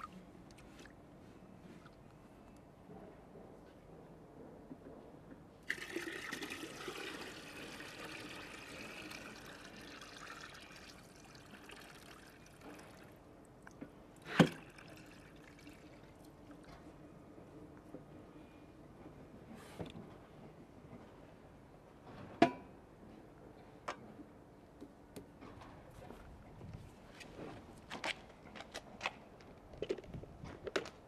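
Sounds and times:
water pouring and splashing into a tub: 0:05.7 - 0:13.1, 0:14.4 - 0:16.4.

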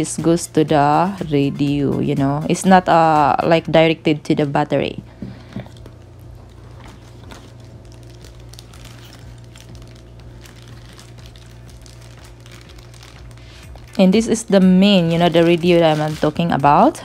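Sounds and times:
steady low hum: 0:00.0 - 0:17.0
plastic bag crinkling: 0:05.3 - 0:17.0.

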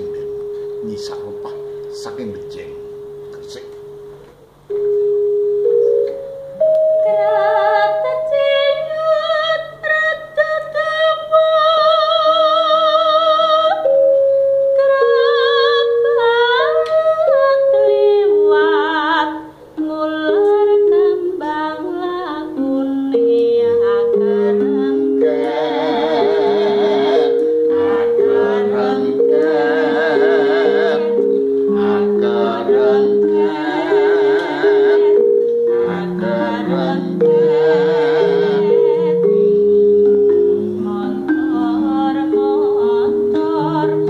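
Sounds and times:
metallophone ringing notes: 0:00.0 - 0:44.0
woman singing with vibrato: 0:05.7 - 0:44.0.

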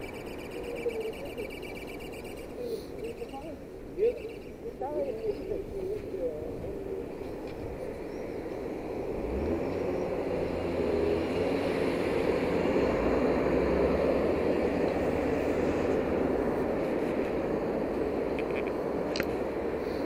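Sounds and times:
passing car engine and tyres: 0:00.0 - 0:20.0.

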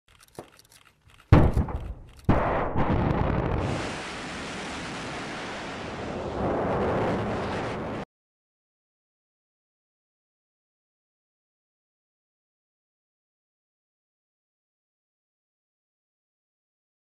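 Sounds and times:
faint clicks: 0:00.1 - 0:02.3
heavy booms: 0:01.4 - 0:08.1.

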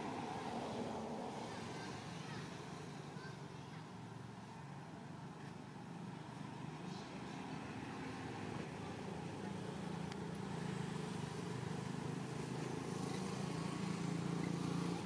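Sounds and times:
vehicle engine humming: 0:05.2 - 0:15.0.

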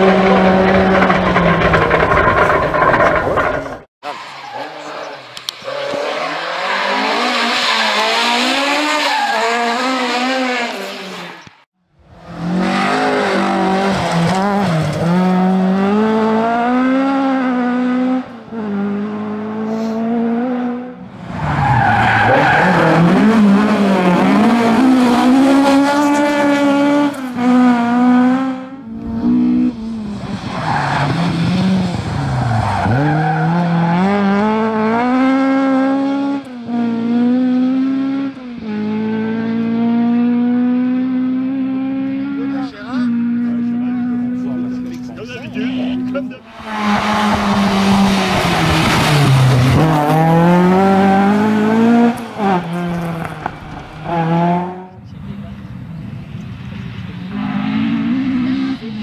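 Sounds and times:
rally car engine revving: 0:00.0 - 0:59.0.

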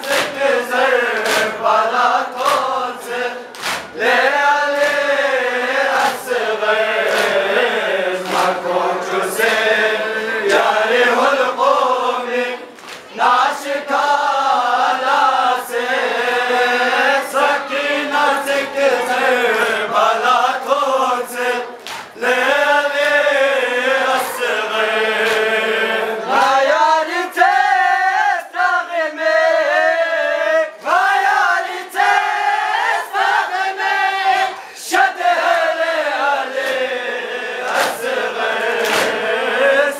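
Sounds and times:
chest-beating slaps: 0:00.0 - 0:05.1, 0:07.0 - 0:07.6, 0:08.2 - 0:08.7, 0:21.8 - 0:22.2, 0:25.2 - 0:25.6, 0:36.6 - 0:36.9, 0:37.6 - 0:39.3
young men chanting in unison: 0:00.0 - 0:39.9.

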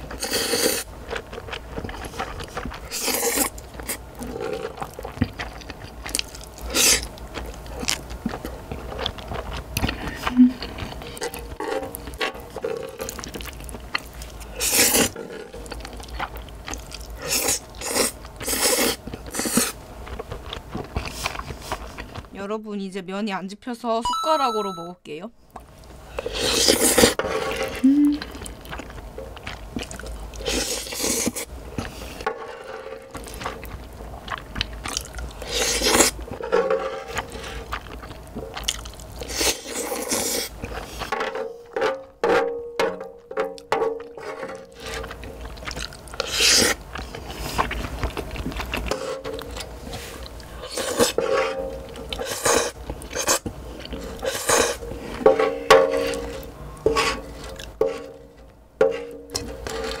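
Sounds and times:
close-up chewing: 0:00.0 - 0:22.4, 0:25.5 - 0:41.8, 0:43.1 - 0:55.3, 0:55.9 - 1:00.0
wooden spoon scraping griddle: 0:26.2 - 0:27.9, 0:31.9 - 0:33.6, 0:35.4 - 0:37.7, 0:48.9 - 1:00.0.

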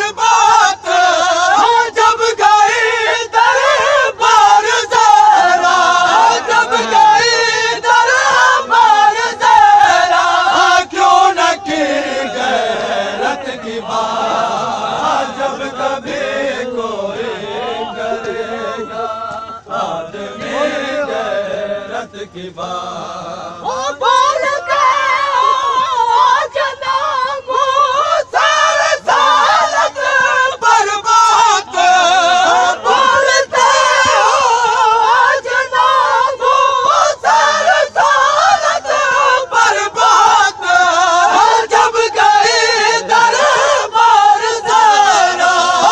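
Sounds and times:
men chanting a lament: 0:00.0 - 0:45.9.

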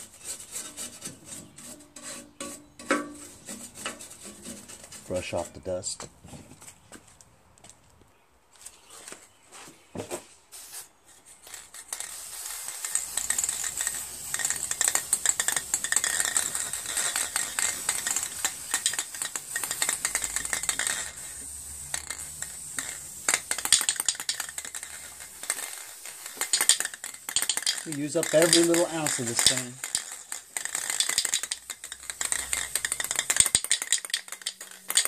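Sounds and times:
aerosol spray can sputtering: 0:10.6 - 0:35.0.

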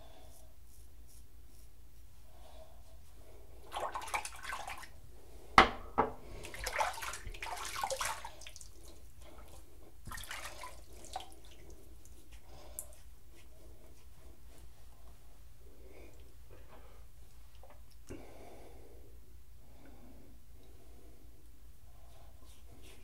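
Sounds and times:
tap water splashing: 0:10.0 - 0:11.7.

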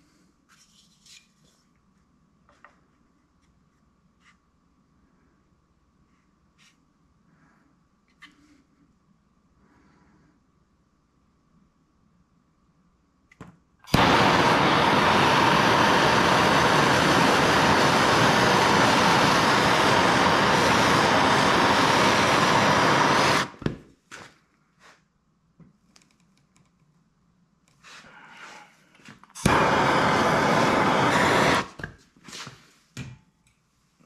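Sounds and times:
gas torch click: 0:13.9 - 0:23.6, 0:29.4 - 0:31.8
gas torch flame hissing: 0:13.9 - 0:23.6, 0:29.3 - 0:32.0.

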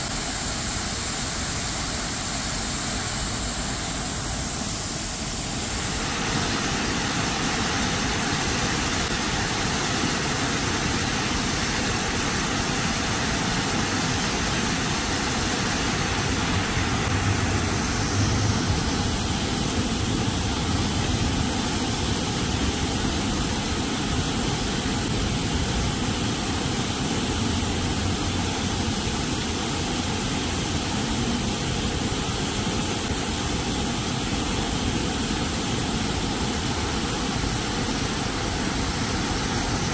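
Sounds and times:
fountain water splashing: 0:00.0 - 0:39.9
city traffic with passing cars: 0:15.9 - 0:23.1, 0:27.4 - 0:30.6
heavy vehicle rumble: 0:16.2 - 0:22.6
trams passing: 0:16.5 - 0:21.4.

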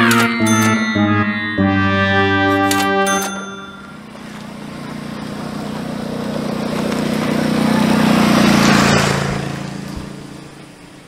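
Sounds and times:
motor scooter passing by: 0:03.9 - 0:11.0.

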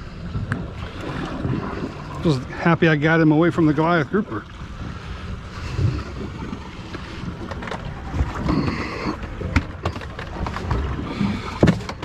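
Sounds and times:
wind rumbling on microphone: 0:00.0 - 0:12.0
knocks on boat deck: 0:11.6 - 0:12.0.

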